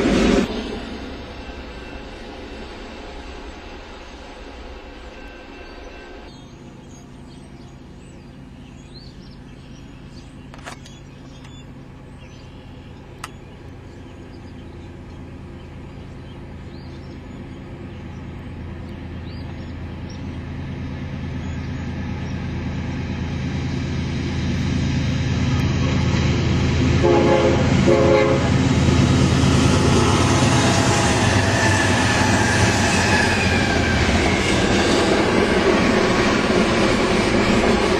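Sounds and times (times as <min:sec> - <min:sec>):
diesel train engine rumble: 0:00.0 - 0:37.9
train wheel and rail noise: 0:00.0 - 0:37.9
train horn: 0:25.4 - 0:29.0.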